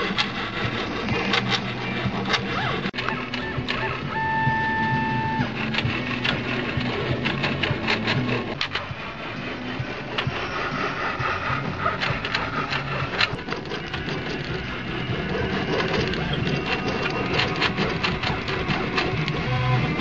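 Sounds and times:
stepper motors humming: 0:00.0 - 0:20.0.

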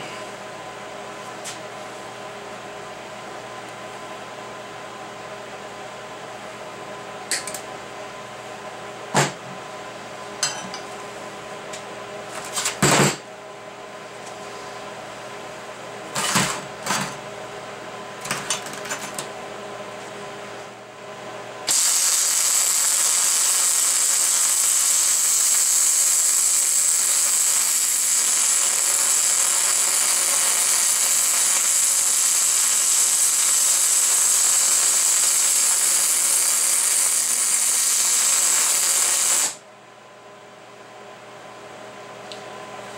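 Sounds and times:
steady background hum: 0:00.0 - 0:21.8, 0:34.5 - 0:42.9
welder arc crackling: 0:21.7 - 0:39.6.

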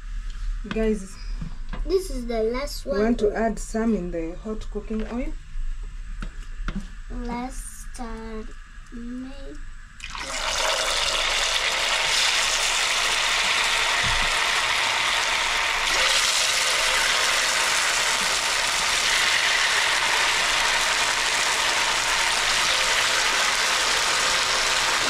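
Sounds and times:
potatoes deep-frying in oil: 0:10.0 - 0:25.0.

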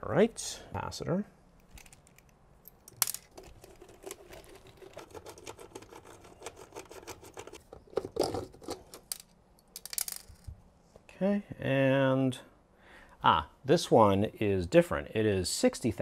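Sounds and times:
clicks scrapes and rattles of metal: 0:03.0 - 0:10.2.

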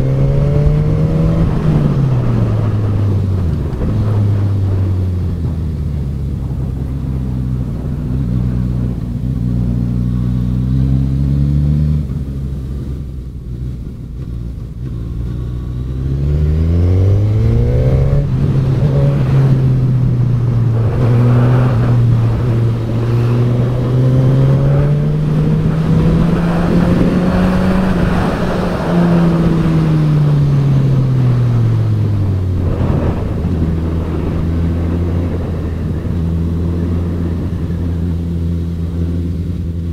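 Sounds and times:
motorcycle engine accelerating: 0:00.0 - 0:39.9.

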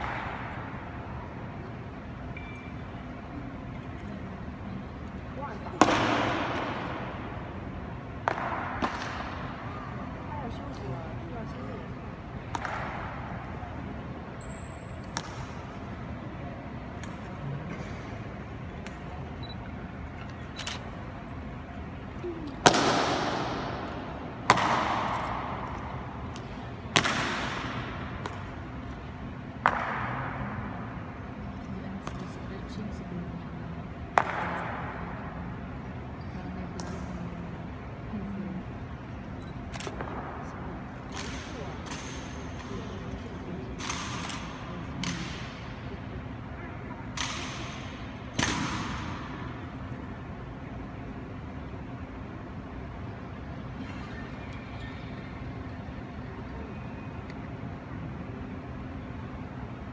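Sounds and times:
long echo in hall: 0:00.0 - 0:01.8, 0:05.3 - 0:18.3, 0:22.2 - 0:37.7.

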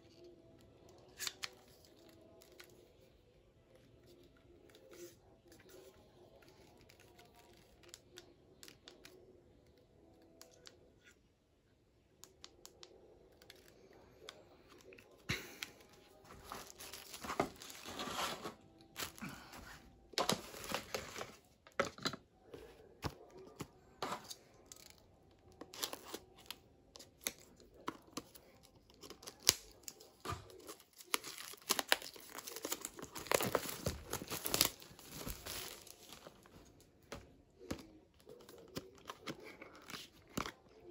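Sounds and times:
plastic packaging crinkling: 0:16.2 - 0:21.5, 0:28.9 - 0:36.8.

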